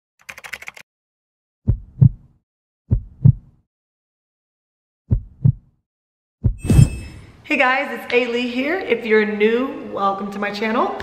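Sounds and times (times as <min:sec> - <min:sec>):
heartbeat double beats: 0:01.7 - 0:02.3, 0:02.9 - 0:03.6, 0:05.1 - 0:05.8, 0:06.4 - 0:07.2.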